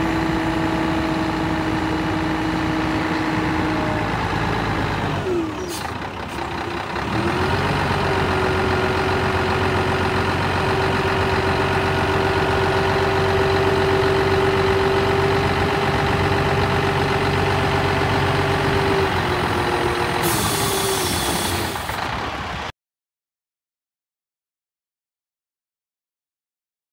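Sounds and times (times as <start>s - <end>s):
diesel truck engine running: 0.0s - 22.7s
hydraulic pump whining: 18.8s - 22.1s.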